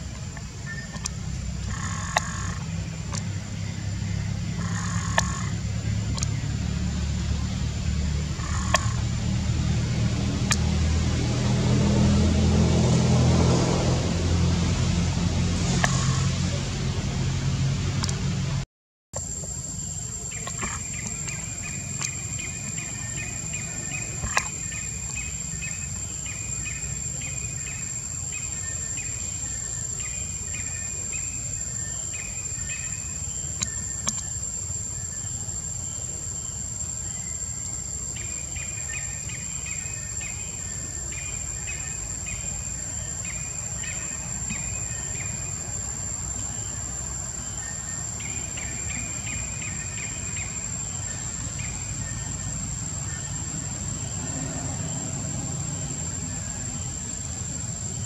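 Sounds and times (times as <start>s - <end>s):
low rumble: 0.0s - 18.6s.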